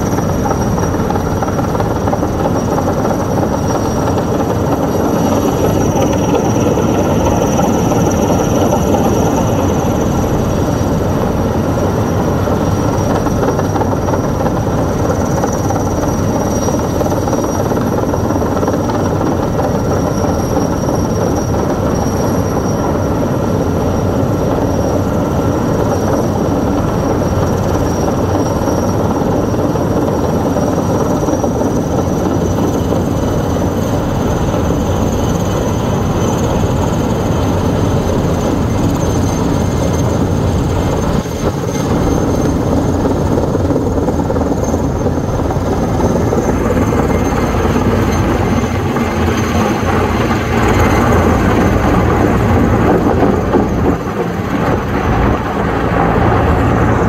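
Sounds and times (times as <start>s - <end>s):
helicopter rotor and turbine noise: 0.0s - 57.0s
high turbine whine: 0.0s - 57.0s.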